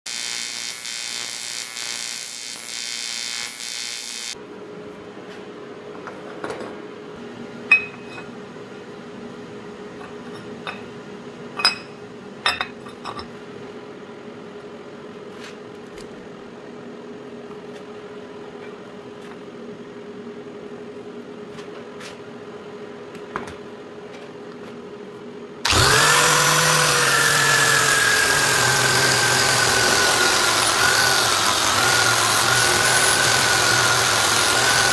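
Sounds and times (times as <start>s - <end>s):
welding arc buzzing: 0.1s - 4.4s, 25.6s - 34.9s
angle grinder running: 25.6s - 34.9s.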